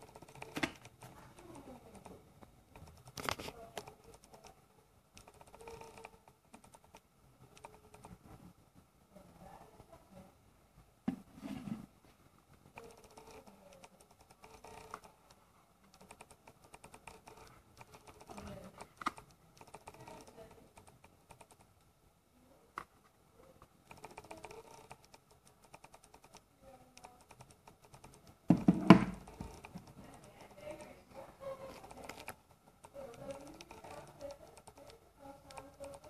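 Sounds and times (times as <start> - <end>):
box knocking on table: 28.5 - 29.2.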